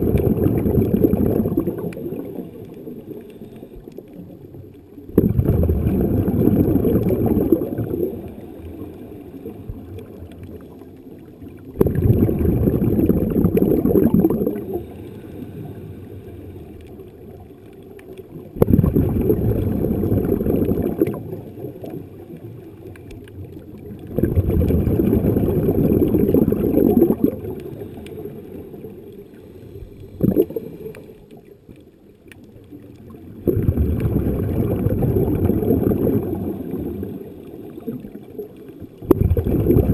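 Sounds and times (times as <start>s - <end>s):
regulator exhalation bubbling: 0.0s - 2.3s, 5.1s - 8.1s, 11.8s - 15.0s, 18.6s - 21.3s, 24.1s - 27.8s, 30.1s - 30.9s, 33.4s - 37.0s, 39.0s - 39.9s
quiet hiss: 0.0s - 39.9s.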